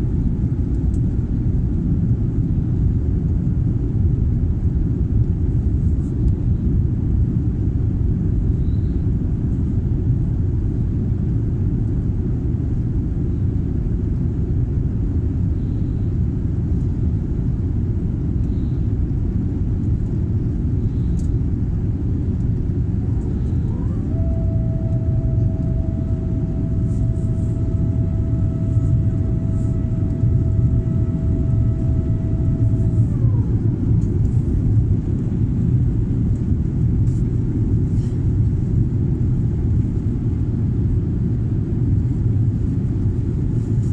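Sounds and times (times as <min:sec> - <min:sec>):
airliner cabin rumble: 0:00.0 - 0:43.9
mechanical whine: 0:20.6 - 0:43.9.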